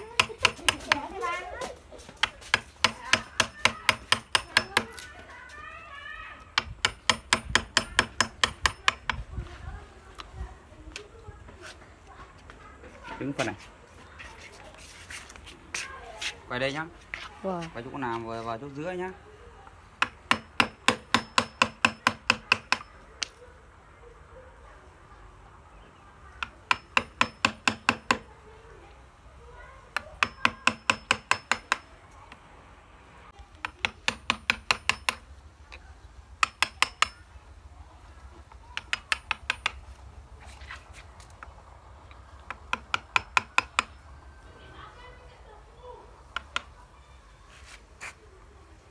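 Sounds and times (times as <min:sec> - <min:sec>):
hammer tapping wood chisel: 0:00.1 - 0:01.1, 0:02.2 - 0:05.0, 0:06.5 - 0:09.2, 0:20.0 - 0:23.3, 0:26.4 - 0:28.3, 0:29.9 - 0:32.4, 0:33.6 - 0:35.3, 0:36.4 - 0:37.2, 0:38.7 - 0:39.9, 0:42.2 - 0:44.1, 0:46.3 - 0:46.8.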